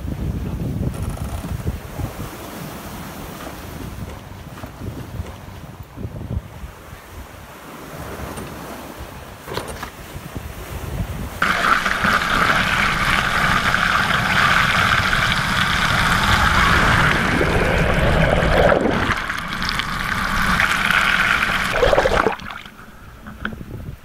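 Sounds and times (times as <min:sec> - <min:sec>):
water rushing underwater hiss: 0:11.4 - 0:23.2.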